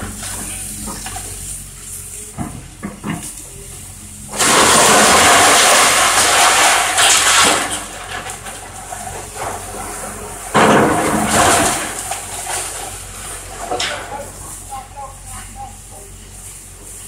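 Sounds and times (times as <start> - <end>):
excavator engine hum: 0.0 - 17.0
timber splintering: 4.3 - 9.7
crash of breaking wood and debris: 4.3 - 14.1.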